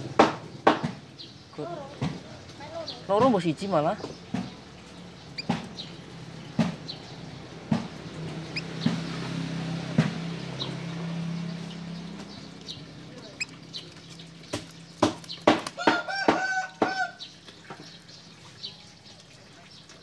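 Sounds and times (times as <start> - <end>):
sharp knocks: 0.0 - 1.0, 5.4 - 5.9, 6.5 - 7.0, 7.6 - 9.3, 14.4 - 17.0
finch chirping: 2.2 - 20.0.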